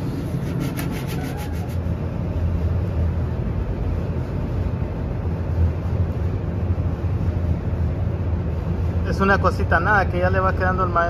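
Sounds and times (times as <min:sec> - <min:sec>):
sanding block rasping: 0:00.0 - 0:01.9
steady low hum: 0:00.0 - 0:11.0.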